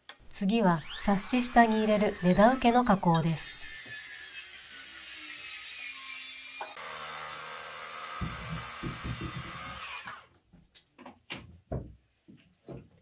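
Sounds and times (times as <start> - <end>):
high-pitched power tool running: 0.8 - 10.2
sharp wooden knocks: 8.2 - 9.8.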